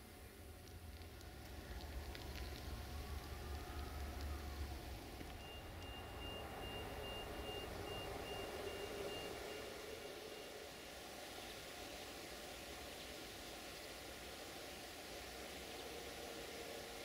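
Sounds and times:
electronic warning beeper: 5.4 - 10.6.

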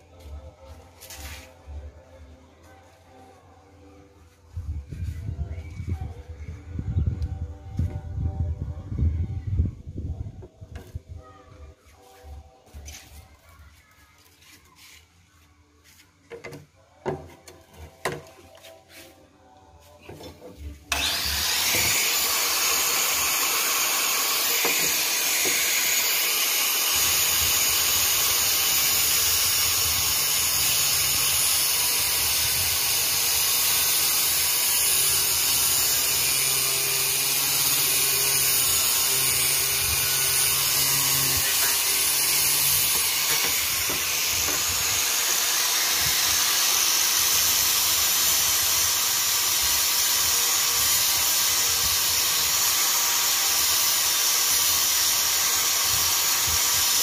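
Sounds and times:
angle grinder grinding plastic: 20.9 - 51.4.

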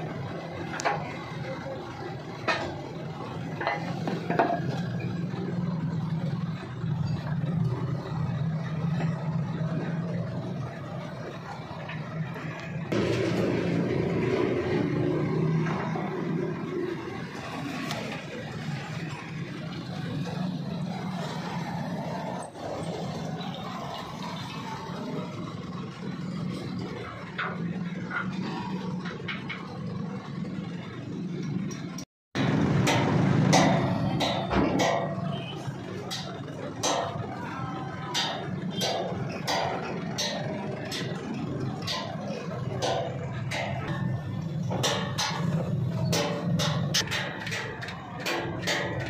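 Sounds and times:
metallic clinks and knocks: 32.8 - 49.0.

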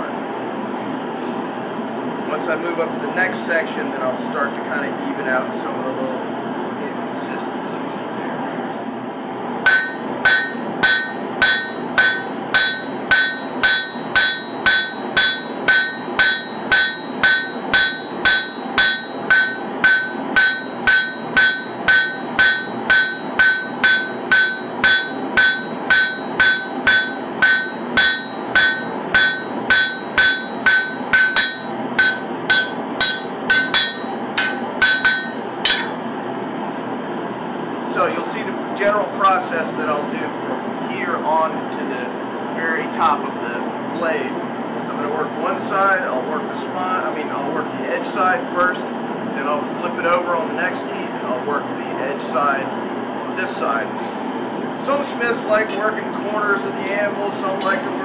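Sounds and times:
hammer striking metal on anvil: 9.6 - 36.0, 57.6 - 57.9
steady machine noise: 9.6 - 36.5.

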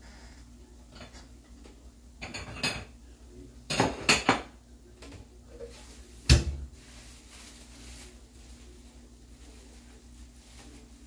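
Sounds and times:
dishes and cutlery clinking: 0.9 - 3.0, 3.6 - 5.8.

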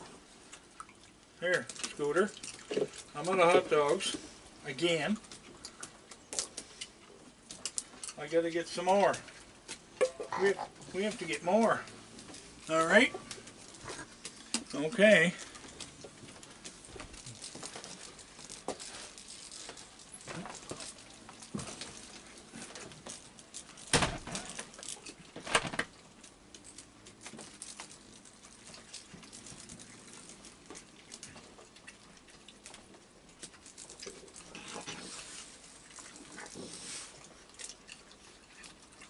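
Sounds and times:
raccoons chewing: 0.0 - 39.0
small clicks and pattering on boards: 15.4 - 39.0.

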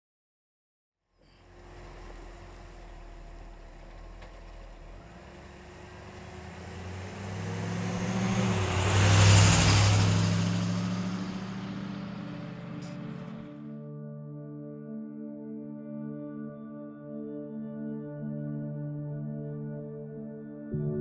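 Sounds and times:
pickup truck engine passing by: 1.3 - 13.6.

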